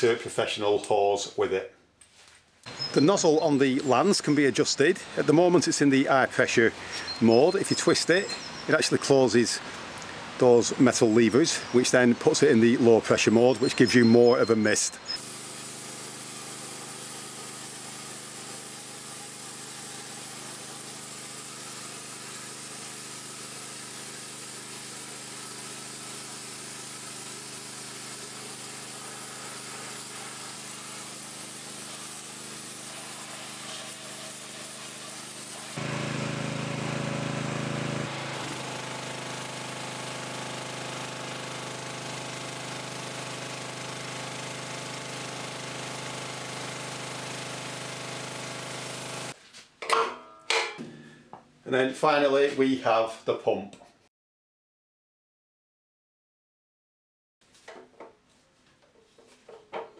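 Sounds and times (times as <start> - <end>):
pressure washer water jet hissing: 2.7 - 49.4
petrol engine running: 35.8 - 49.3.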